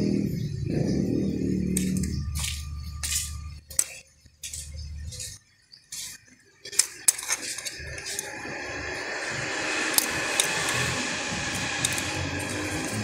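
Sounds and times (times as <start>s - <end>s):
metal tool scraping plastic: 1.7s - 8.5s, 9.9s - 13.0s.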